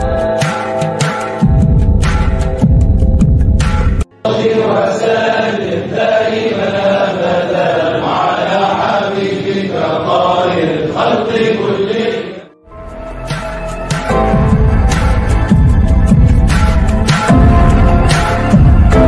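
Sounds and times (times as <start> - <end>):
men chanting in unison: 4.2 - 12.5.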